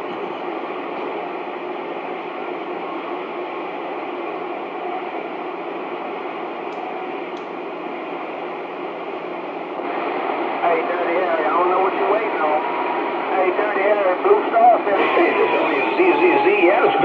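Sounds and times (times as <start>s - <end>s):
radio static hiss: 9.7s - 17.0s.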